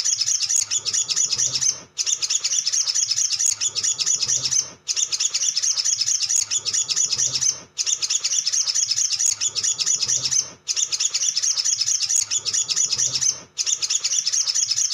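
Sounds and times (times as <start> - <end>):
sunbird twittering song: 0.0 - 14.9.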